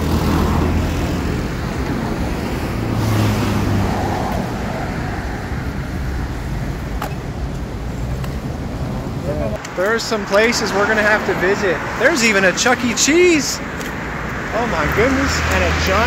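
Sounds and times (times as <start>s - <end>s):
cars driving past: 0.0s - 16.0s.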